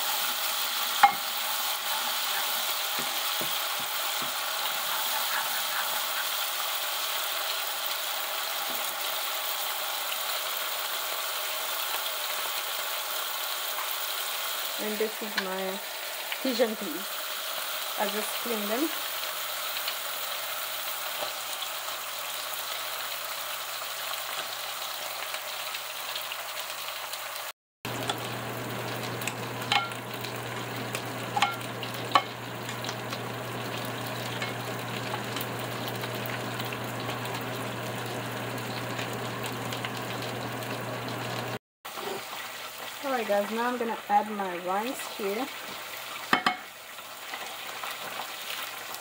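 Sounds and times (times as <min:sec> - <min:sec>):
peas sizzling in a saucepan: 0:00.0 - 0:49.0
wooden spoon knocking on pan: 0:46.3 - 0:46.6.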